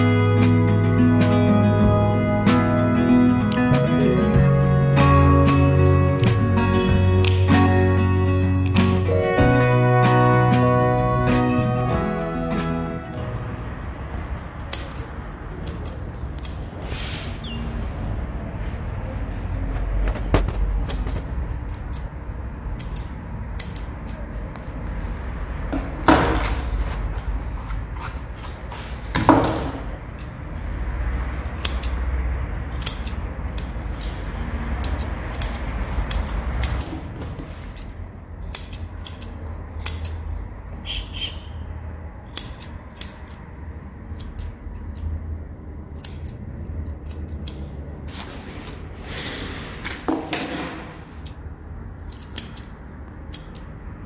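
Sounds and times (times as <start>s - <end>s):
grooming shears snipping: 14.5s - 17.2s, 20.0s - 22.1s, 22.7s - 24.7s, 31.4s - 32.0s, 32.6s - 37.0s, 42.3s - 43.4s, 52.0s - 53.7s.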